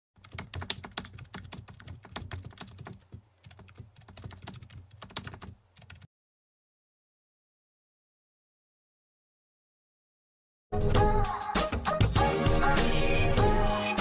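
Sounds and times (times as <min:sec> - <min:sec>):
keyboard typing clicks: 0:00.2 - 0:06.1.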